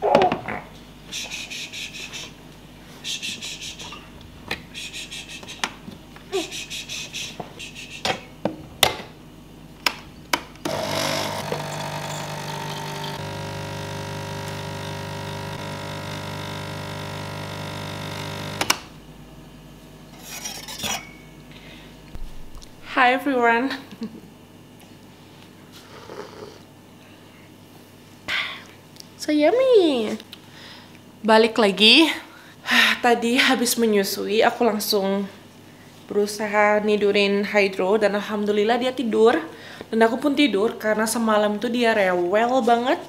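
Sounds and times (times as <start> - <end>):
espresso machine pump humming: 10.6 - 18.8.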